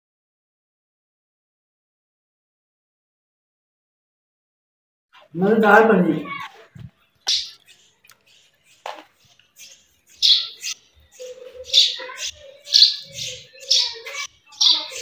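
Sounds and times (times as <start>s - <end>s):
bird harsh chirps: 5.2s - 15.0s.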